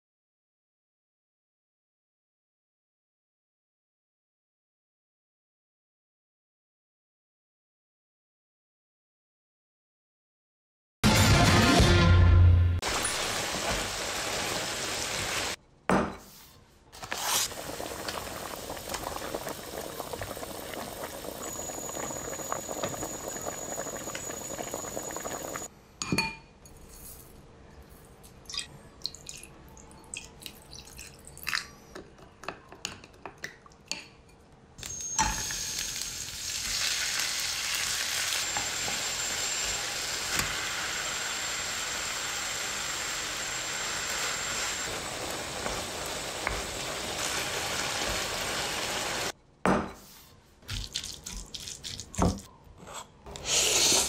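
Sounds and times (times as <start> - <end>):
food frying with sizzle: 12.8 - 15.6, 17.0 - 25.7, 34.8 - 49.3.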